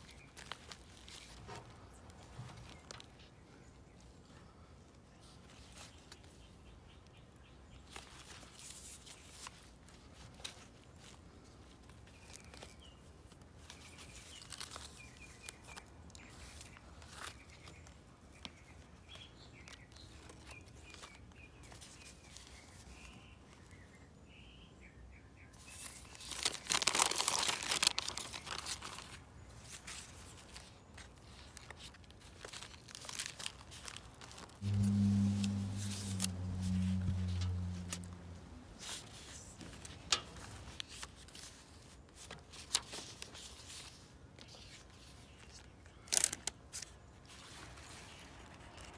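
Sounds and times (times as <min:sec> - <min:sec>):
paper pages rustling: 0:00.0 - 0:03.4, 0:07.9 - 0:18.0, 0:25.7 - 0:48.9
low steady hum: 0:34.6 - 0:40.4.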